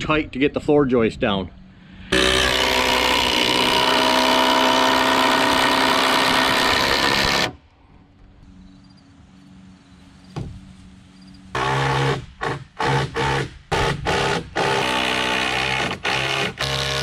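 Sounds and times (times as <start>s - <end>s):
cordless drill drilling into log: 2.1s - 7.6s, 11.6s - 17.0s.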